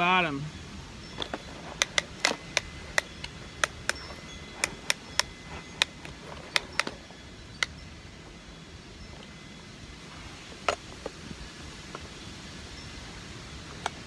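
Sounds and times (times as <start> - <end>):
plastic toy parts clicking: 1.2 - 7.0.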